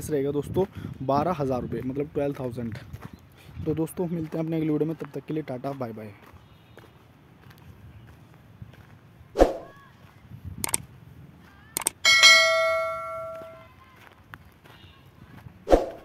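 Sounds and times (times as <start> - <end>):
mouse clicks: 11.8 - 12.0
bell ding: 11.8 - 13.6.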